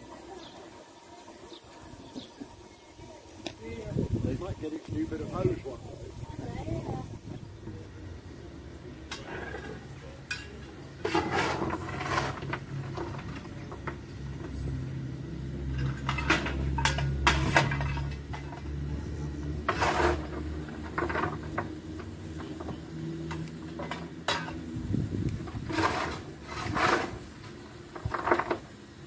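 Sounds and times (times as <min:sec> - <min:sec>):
metal clanks and scrapes: 0:09.0 - 0:14.7, 0:15.6 - 0:24.8, 0:25.4 - 0:29.0.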